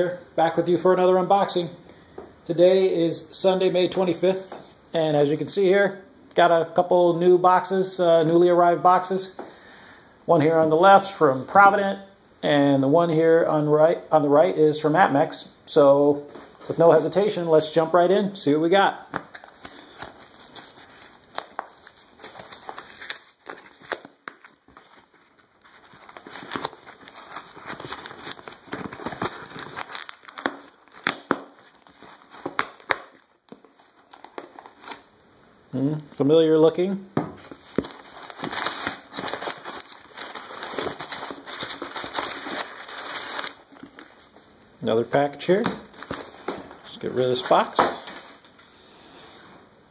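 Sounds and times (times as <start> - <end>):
cardboard and paper rustling: 19.2 - 35.0, 37.4 - 44.6, 45.5 - 48.6
cardboard box rustling and crinkling: 37.4 - 44.3.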